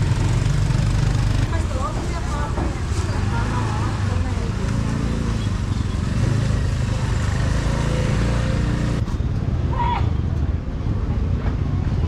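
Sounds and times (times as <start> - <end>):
motorbike engine running: 0.0 - 9.0
market street noise: 0.0 - 12.0.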